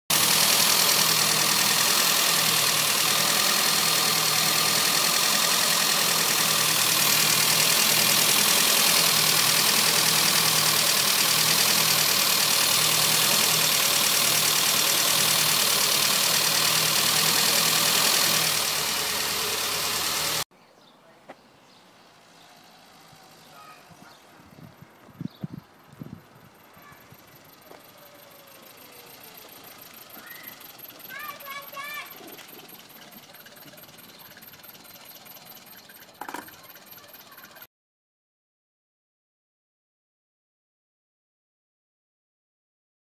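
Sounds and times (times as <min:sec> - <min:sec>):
car engine idling: 0:00.1 - 0:20.5, 0:25.8 - 0:37.7.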